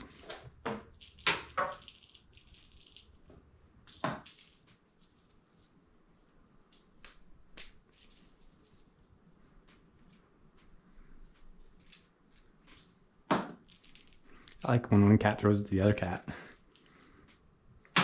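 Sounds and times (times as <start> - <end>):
soft taps and rustles: 4.2 - 13.8.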